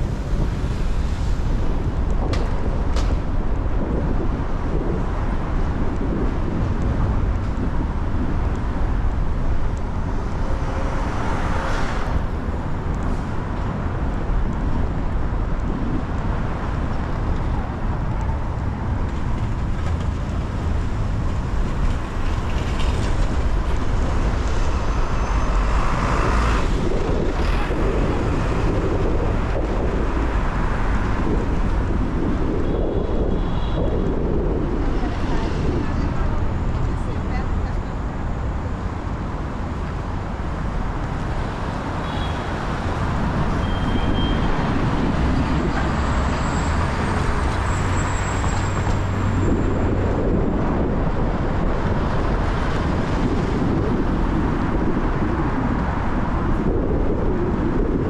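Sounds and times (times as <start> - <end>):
rumble of traffic: 0.0 - 58.0
vehicles passing: 0.0 - 58.0.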